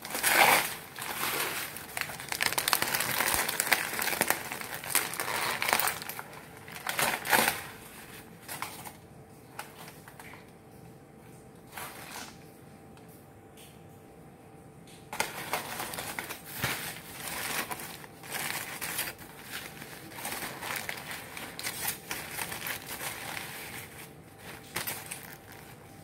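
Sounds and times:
aluminium foil crinkling: 0:00.0 - 0:10.6, 0:11.6 - 0:12.5, 0:15.1 - 0:26.0.

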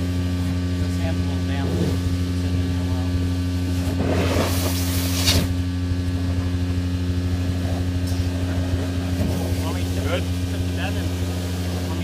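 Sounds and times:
industrial vacuum humming: 0:00.0 - 0:12.0
hose sucking up sand: 0:03.8 - 0:05.6.

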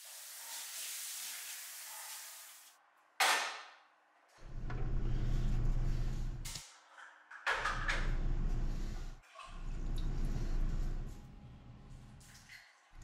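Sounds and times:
steady low rumble: 0:04.5 - 0:06.5, 0:07.9 - 0:12.1.

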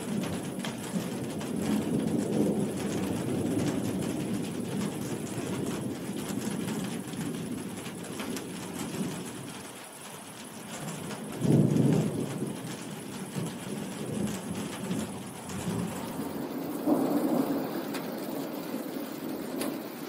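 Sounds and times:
heavy rain: 0:00.0 - 0:20.0
rolling thunder rumble: 0:00.0 - 0:20.0.

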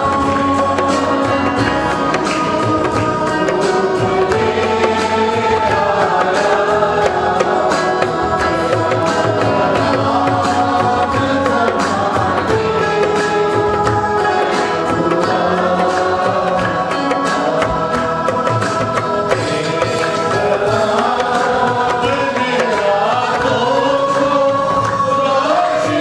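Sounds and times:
congregation singing: 0:00.0 - 0:26.0
hand drum beating: 0:00.0 - 0:26.0
held chords: 0:00.0 - 0:26.0
hands clapping: 0:22.4 - 0:25.6.

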